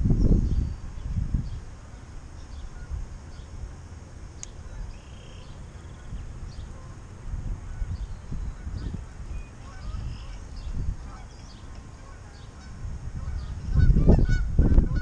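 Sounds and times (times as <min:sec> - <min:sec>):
wind rumble on microphone: 0:00.0 - 0:15.0
geese honking: 0:09.5 - 0:10.4, 0:11.0 - 0:15.0.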